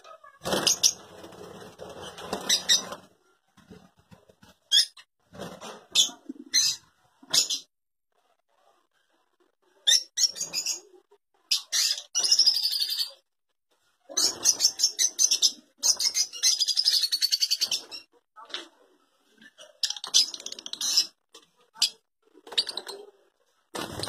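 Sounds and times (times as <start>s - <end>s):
birds chirping high-pitched: 0.2s - 1.1s, 2.0s - 3.1s, 9.8s - 13.2s, 14.1s - 18.1s, 19.4s - 23.1s.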